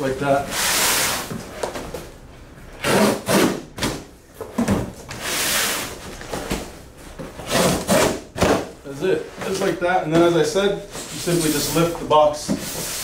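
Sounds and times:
box cutter cutting cardboard: 7.4 - 8.2.

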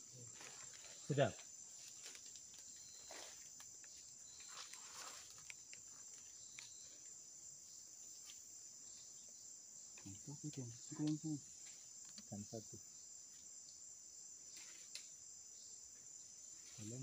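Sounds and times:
rustling through vegetation: 0.0 - 7.0, 14.5 - 15.2
high-pitched insect buzz: 0.0 - 17.0.

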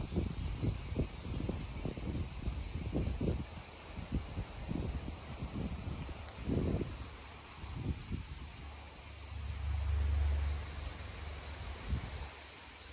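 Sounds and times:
wind buffeting microphone: 0.0 - 9.3
cicadas droning: 0.0 - 12.9.

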